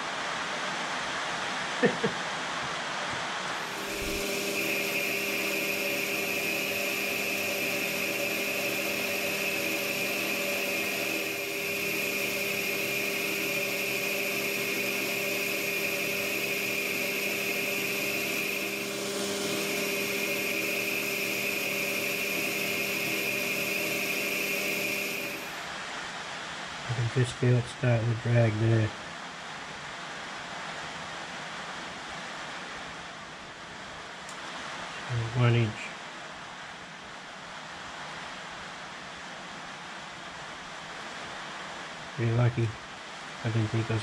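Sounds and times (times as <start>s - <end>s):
metal lathe whining: 3.6s - 25.6s.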